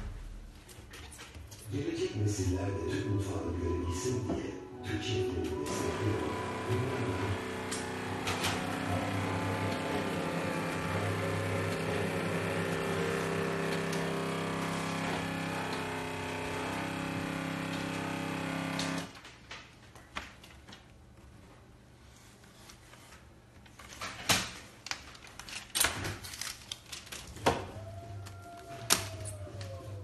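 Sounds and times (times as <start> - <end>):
background music: 1.7 - 10.2.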